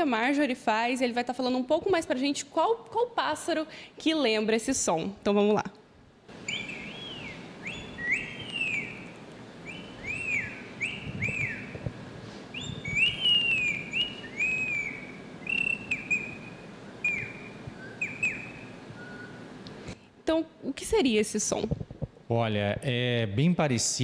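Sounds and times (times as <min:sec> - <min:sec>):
girl whistling birdsong: 0:06.5 - 0:09.0, 0:09.7 - 0:11.8, 0:12.5 - 0:19.5.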